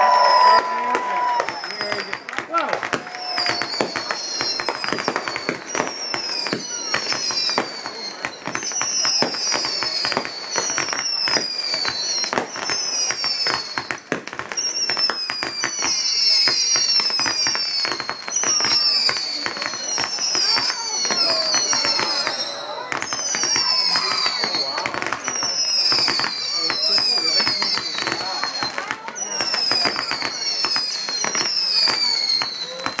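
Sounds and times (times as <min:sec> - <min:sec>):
high falling whistles: 0:00.0 - 0:02.3, 0:03.2 - 0:13.9, 0:14.6 - 0:32.8
fireworks bangs and crackling: 0:00.0 - 0:33.0.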